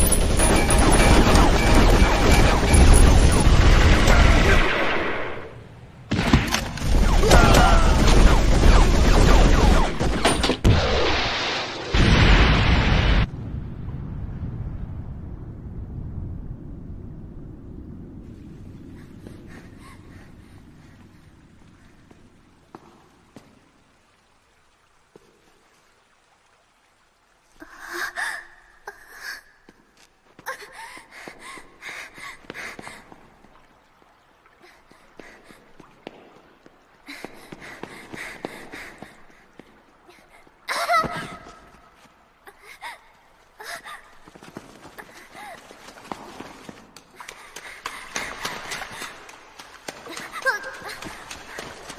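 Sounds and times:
explosion blast: 10.6s - 16.7s
deep rumble: 12.0s - 20.8s
girl breathing hard: 18.9s - 21.4s, 30.5s - 33.2s, 37.1s - 40.8s, 42.5s - 45.7s, 47.2s - 49.3s
girl gasping: 30.4s - 33.0s, 42.5s - 44.2s, 45.0s - 45.7s
running footsteps on stone: 35.2s - 39.8s, 44.1s - 51.9s.

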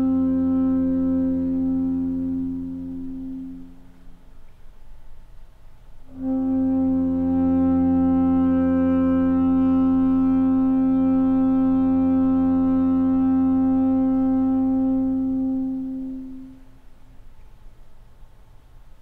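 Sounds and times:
saxophone holding chord: 0.0s - 4.1s, 6.1s - 16.8s
bowed double bass: 6.1s - 16.4s.

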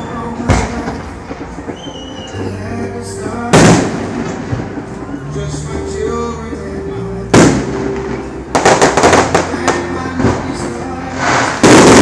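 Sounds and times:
firework booms: 0.0s - 2.5s, 3.2s - 5.2s, 7.3s - 12.0s
firework cracks: 0.0s - 5.2s, 7.3s - 12.0s.

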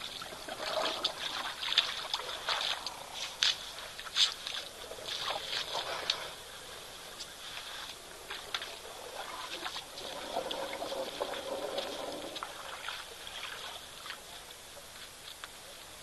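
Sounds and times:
water drips and clicks: 0.0s - 6.3s, 8.3s - 14.2s
water splashing and sloshing: 0.0s - 15.4s.

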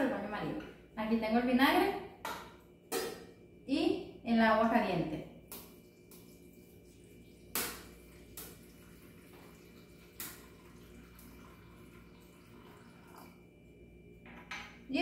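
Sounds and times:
water trickling into a pan: 5.8s - 13.4s.

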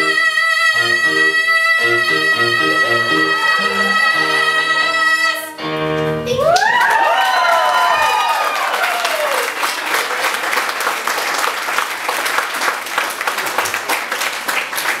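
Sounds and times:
voices cheering and whooping: 6.3s - 9.6s
audience applauding: 6.3s - 15.0s.

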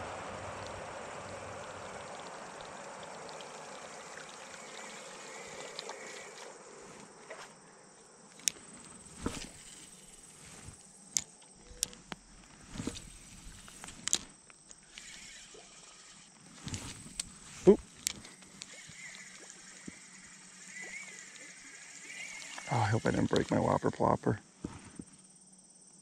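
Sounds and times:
spinning reel whirring: 0.0s - 7.1s, 11.6s - 23.7s.

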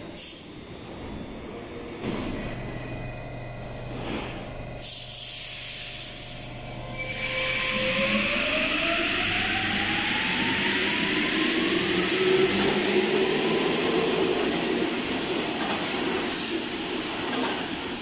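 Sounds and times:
train electric motor whine: 0.0s - 17.8s
air hisses: 4.8s - 6.4s.

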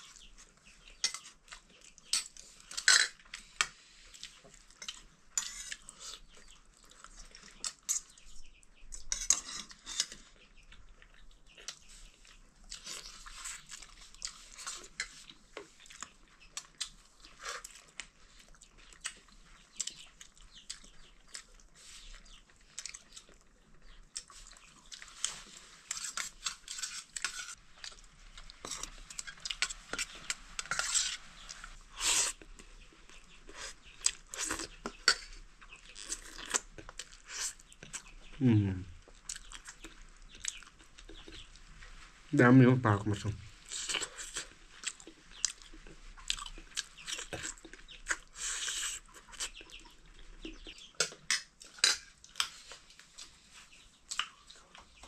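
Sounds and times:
chewing: 0.0s - 42.2s, 43.6s - 55.0s
spoon scraping on plate: 4.8s - 5.9s, 25.9s - 27.6s, 29.9s - 31.2s.

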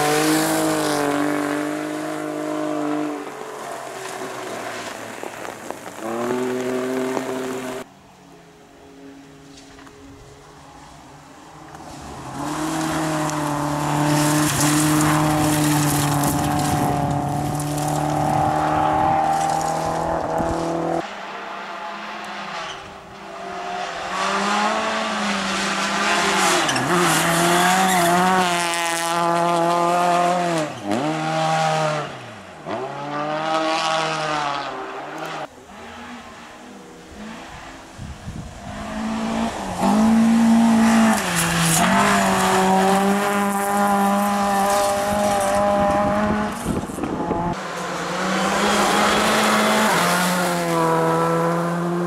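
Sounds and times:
car engine revving through gears: 23.6s - 37.8s, 38.7s - 52.0s.

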